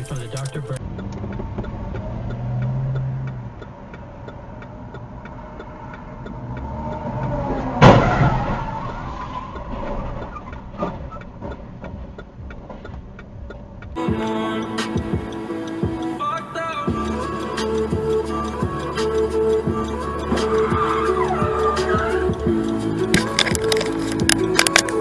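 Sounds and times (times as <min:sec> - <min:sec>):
engine and traffic noise: 0:00.0 - 0:25.0
turn signal ticking: 0:00.0 - 0:25.0
car collision crash: 0:07.7 - 0:11.2.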